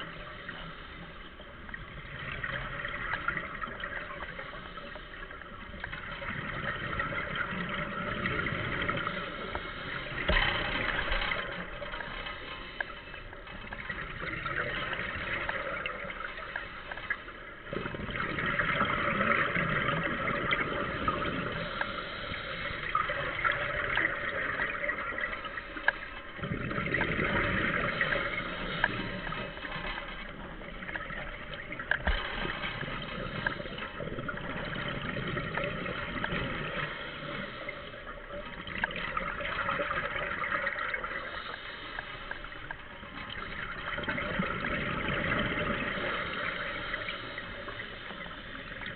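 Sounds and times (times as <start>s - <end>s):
exhaled bubbles gurgling: 0.0s - 48.9s
scuba regulator breathing: 21.4s - 23.3s, 41.2s - 42.8s.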